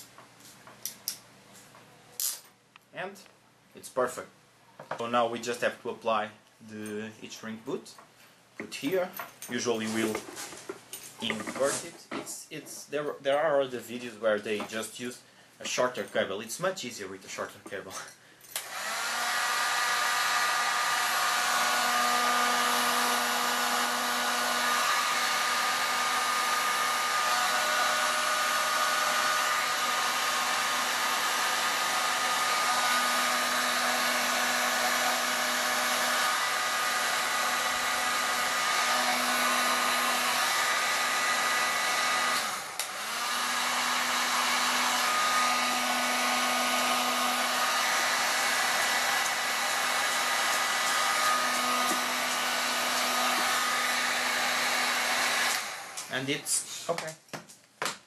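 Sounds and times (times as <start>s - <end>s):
heat gun blowing: 18.5s - 56.9s.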